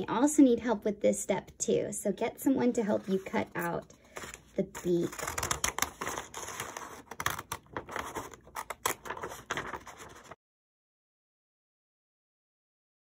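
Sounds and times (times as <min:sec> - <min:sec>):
paper rustling: 0:02.8 - 0:10.4
scissors snipping paper: 0:03.6 - 0:10.4.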